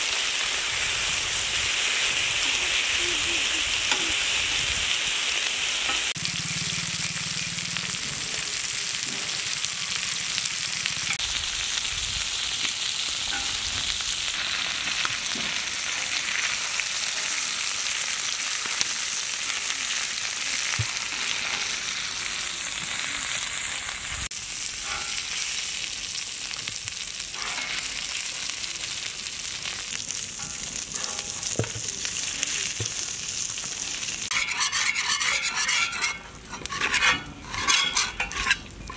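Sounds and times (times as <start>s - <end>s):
chicken sizzling on griddle: 0.0s - 38.9s
metal spatula scraping: 24.8s - 25.5s, 27.4s - 28.3s, 30.3s - 31.9s, 34.3s - 38.9s.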